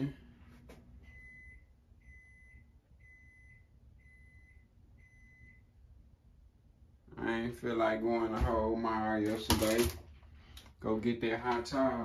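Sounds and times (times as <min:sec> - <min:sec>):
microwave oven beeping: 0:01.0 - 0:06.1.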